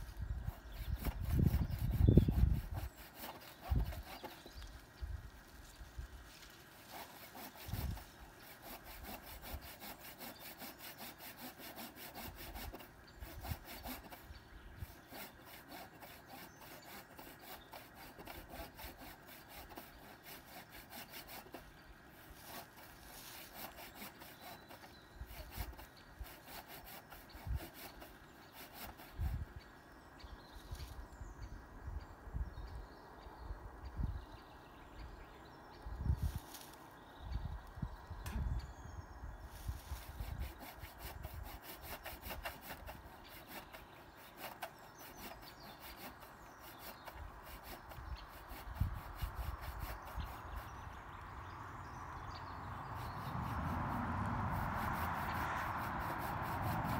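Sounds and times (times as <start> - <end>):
hand saw cutting wood: 0.0 - 4.8, 6.3 - 29.5, 39.8 - 50.9, 52.9 - 56.9.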